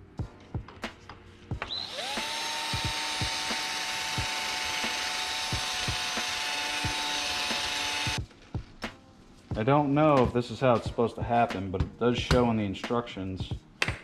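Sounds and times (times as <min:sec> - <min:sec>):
cordless drill whining: 0:01.6 - 0:08.2.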